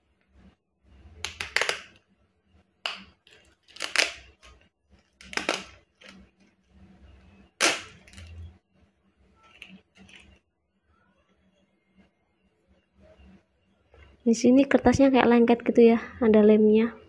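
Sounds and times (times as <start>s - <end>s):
plastic sheet crackling: 2.9s - 6.6s
plastic rustling: 3.0s - 6.8s, 9.4s - 10.4s.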